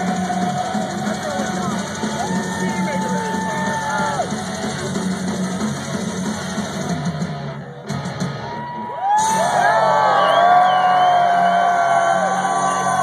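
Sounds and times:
crowd whooping and shouting: 0.0s - 4.6s, 8.2s - 13.0s
loud distorted metal music: 0.0s - 9.9s.

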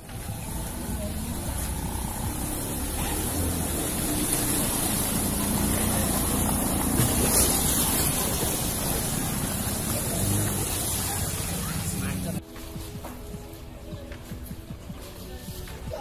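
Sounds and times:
floodwater rushing and splashing: 0.0s - 12.4s
scooter engine running: 0.0s - 12.9s.

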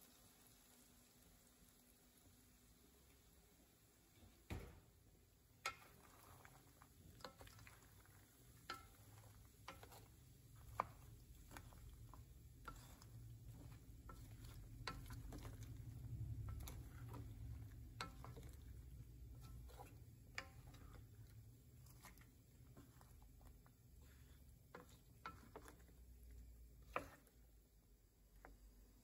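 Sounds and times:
wooden spatula stirring in frying pan: 5.3s - 29.0s
spatula tapping pan: 5.5s - 27.5s.

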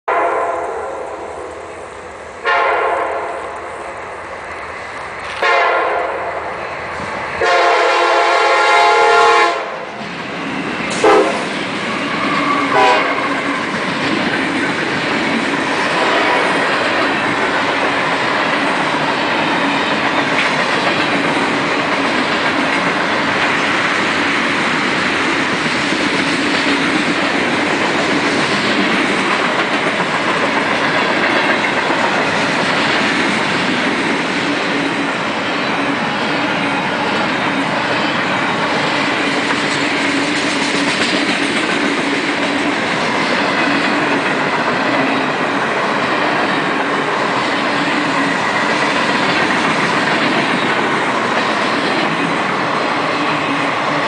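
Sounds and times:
train horn blasts: 0.1s - 1.3s, 2.4s - 3.6s, 5.4s - 6.4s, 7.4s - 9.8s, 11.0s - 11.5s, 12.2s - 13.4s, 15.9s - 16.6s
wheels clicking over rail joints: 10.9s - 54.0s.

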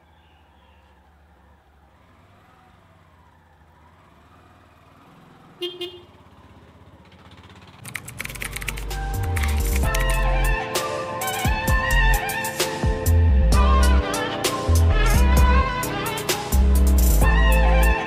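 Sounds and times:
vehicle horn tooting: 5.6s - 6.3s.

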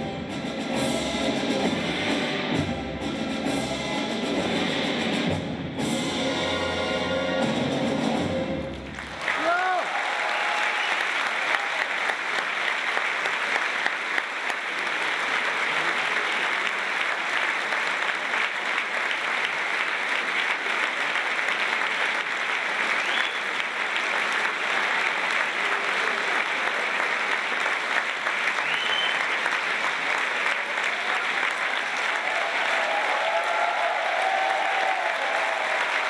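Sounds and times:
audience applauding: 8.6s - 36.0s.

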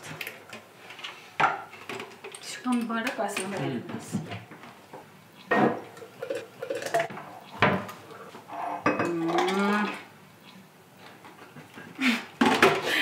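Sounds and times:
dishes and utensils clinking: 5.5s - 7.9s, 8.5s - 10.0s.

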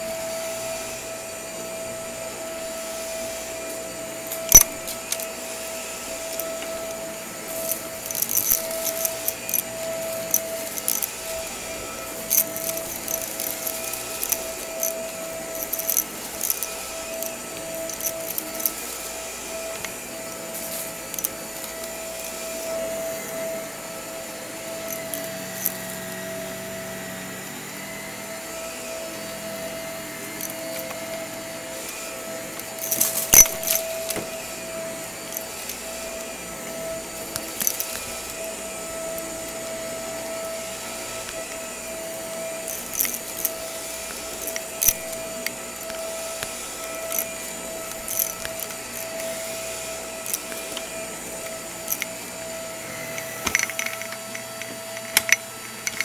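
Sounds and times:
vacuum cleaner motor whine: 0.0s - 56.0s
sharp clicks and rattles: 7.6s - 11.4s, 12.2s - 18.8s, 20.7s - 22.4s, 42.6s - 46.0s, 46.8s - 49.3s, 53.1s - 56.0s.

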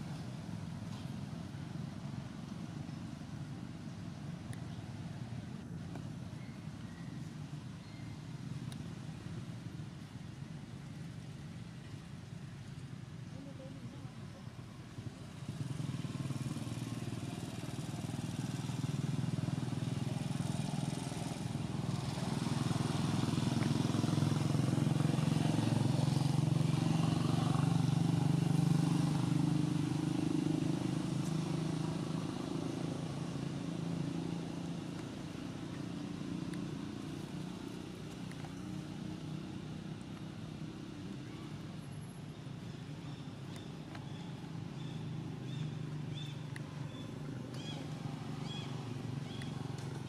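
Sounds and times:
vehicle passing by: 15.0s - 41.8s, 43.9s - 50.0s.

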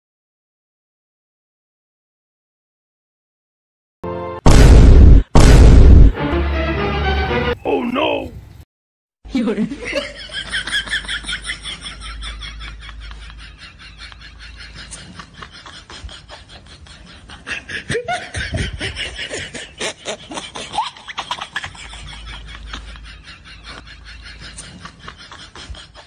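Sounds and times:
people laughing: 9.6s - 26.0s.

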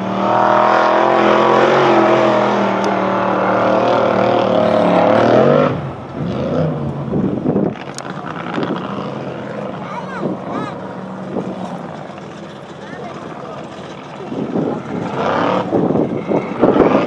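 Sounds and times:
car engine at high revs: 0.0s - 17.0s
wheels spinning in sand: 6.8s - 17.0s.

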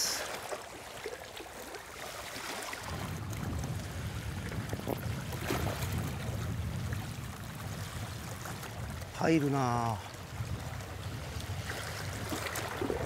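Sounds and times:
sea water washing over rocks: 0.0s - 13.0s.

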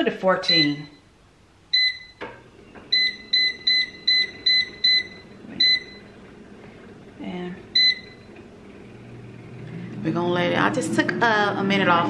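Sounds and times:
control panel beeping: 0.5s - 1.0s, 1.7s - 6.3s, 7.7s - 8.4s.

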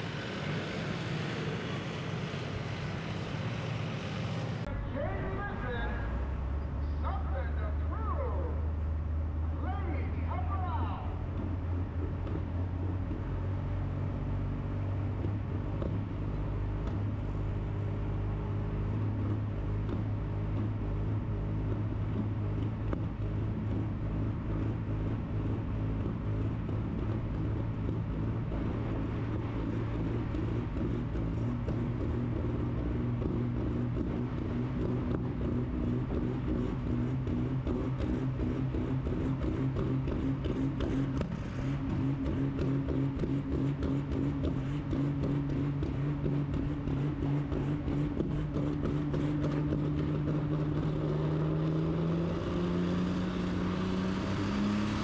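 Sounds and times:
diesel truck engine running: 0.0s - 55.0s.

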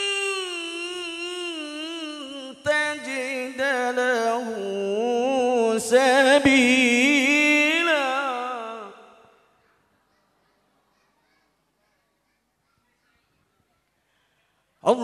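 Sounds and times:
man reciting melodically: 0.0s - 9.4s, 14.8s - 15.0s.

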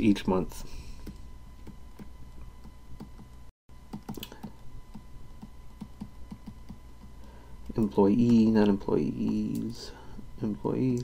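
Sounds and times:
stylus tapping and scratching on screen: 1.0s - 9.7s.

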